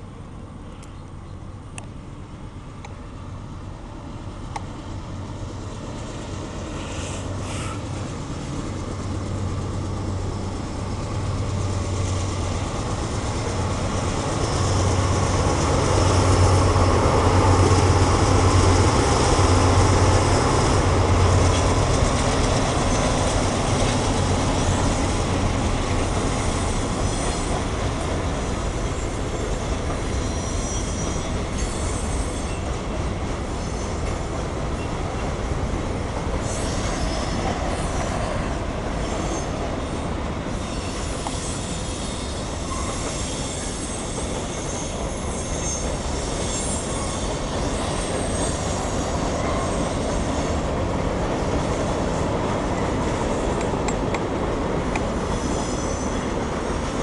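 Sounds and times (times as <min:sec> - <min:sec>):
diesel locomotive engine drone: 0:00.0 - 0:57.0
freight cars rolling on rails: 0:04.3 - 0:57.0
high wheel squeal: 0:06.7 - 0:08.0, 0:26.1 - 0:32.8, 0:33.5 - 0:34.2, 0:36.4 - 0:50.8, 0:55.1 - 0:56.9.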